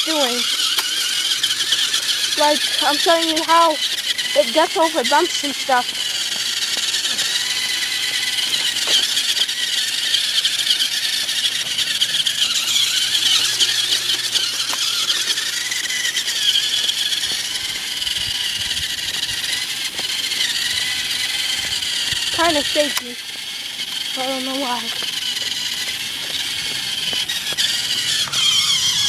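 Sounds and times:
toy truck electric motor whining: 0.0 - 29.0.

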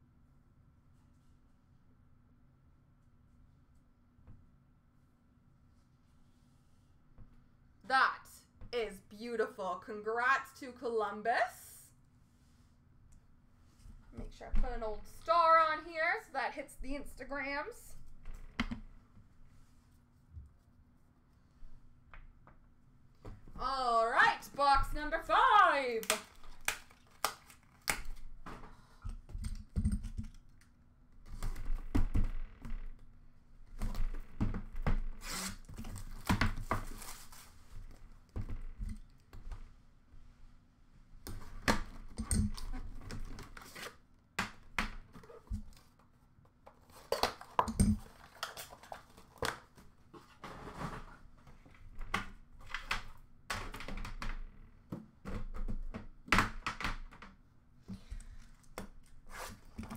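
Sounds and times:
wrapping tearing and crinkling: 26.2 - 28.2.

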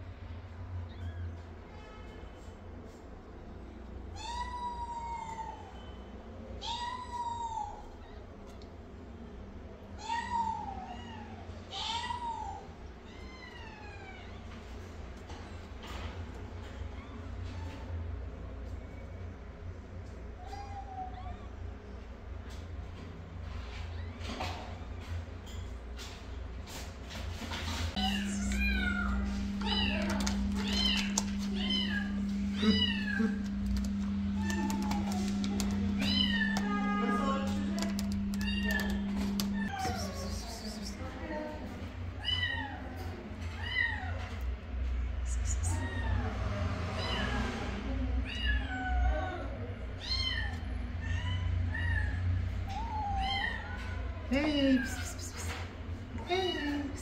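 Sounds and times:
steady low hum: 27.9 - 42.2
kittens mewing: 28.0 - 40.9.

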